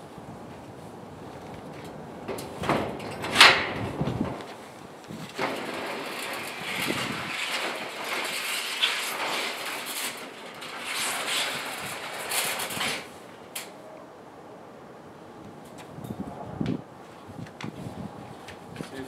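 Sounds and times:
roll-up door slats rattling: 1.8s - 13.8s.

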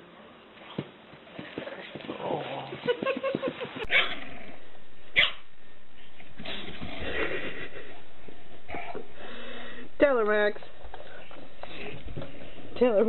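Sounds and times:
dog barking: 5.1s - 5.4s.

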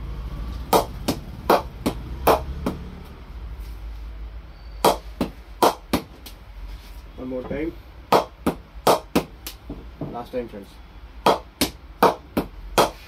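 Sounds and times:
ball bouncing on cricket bat: 0.7s - 2.9s, 4.8s - 6.4s, 8.1s - 10.3s, 11.2s - 13.0s.

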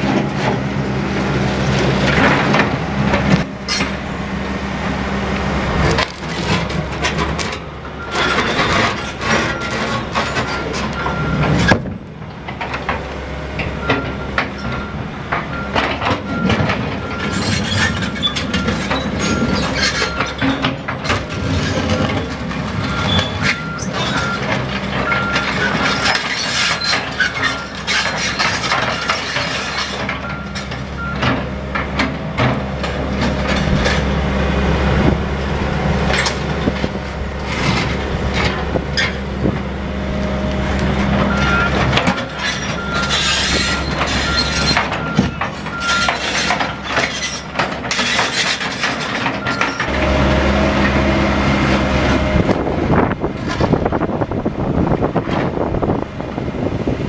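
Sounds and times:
excavator diesel engine: 0.0s - 57.0s
back-up alarm beeping: 11.0s - 11.5s, 30.2s - 31.3s, 41.3s - 41.8s, 42.7s - 46.2s.

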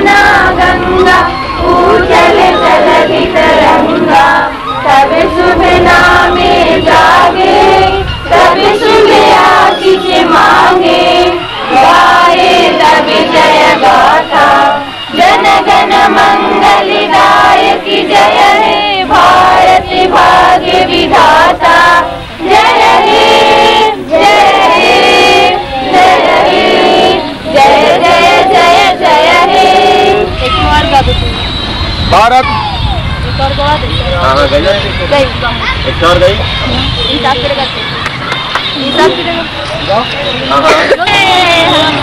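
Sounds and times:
children singing in chorus: 0.0s - 30.4s.

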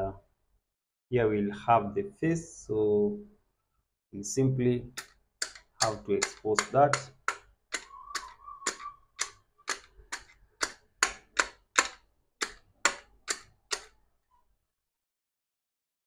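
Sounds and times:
screwdriver clicking on screws: 5.0s - 14.0s.

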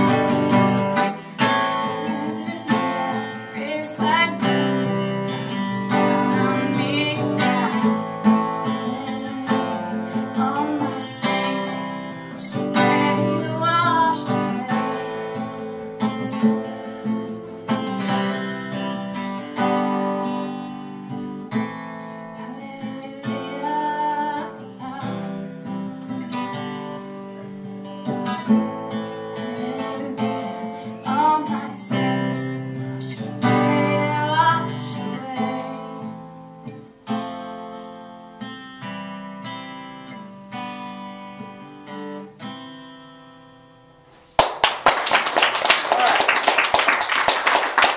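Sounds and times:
woman singing: 0.0s - 16.8s, 22.4s - 25.9s, 29.3s - 36.2s
acoustic guitar strumming: 0.0s - 45.5s.

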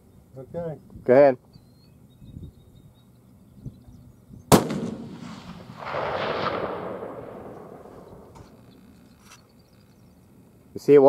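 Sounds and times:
rifle shot rumbling: 4.5s - 9.2s.

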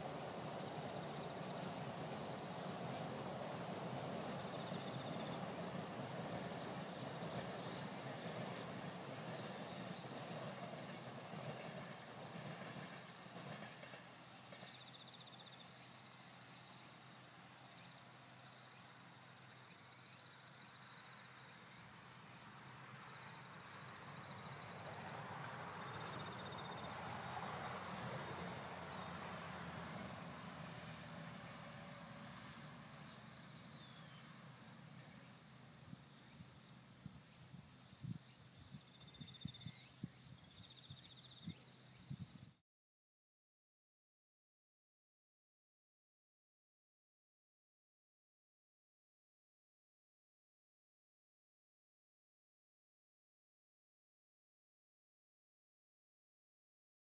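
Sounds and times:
insects chirring: 0.0s - 42.5s.

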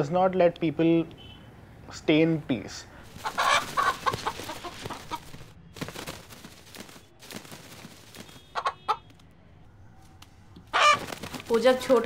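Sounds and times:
rooster clucking: 3.1s - 5.4s, 8.5s - 9.1s, 10.7s - 11.1s.

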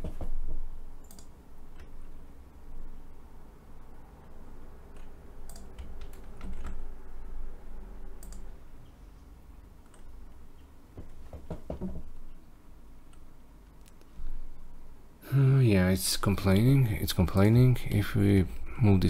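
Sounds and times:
computer keyboard keystrokes: 1.0s - 1.9s, 5.0s - 6.9s, 8.2s - 8.5s
mouse clicks: 1.0s - 1.9s.

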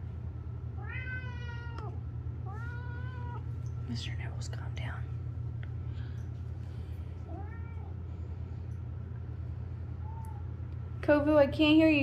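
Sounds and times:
steady low hum: 0.0s - 12.0s
cat meowing: 0.8s - 3.5s, 7.3s - 7.9s.

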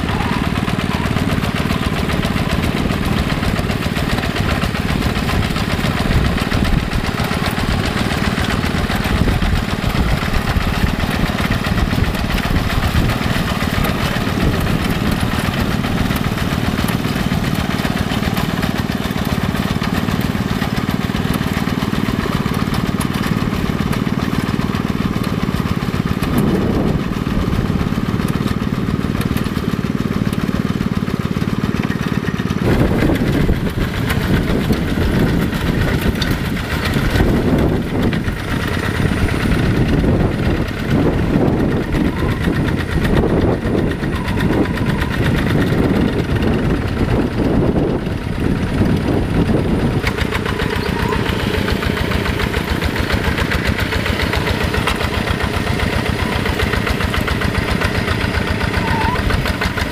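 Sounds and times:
diesel hand tractor engine running: 0.0s - 59.9s.

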